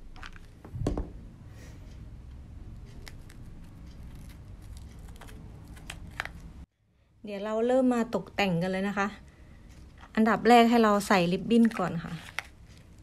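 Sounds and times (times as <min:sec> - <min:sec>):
paper crinkles and clicks: 0:03.0 - 0:06.5, 0:11.6 - 0:13.0.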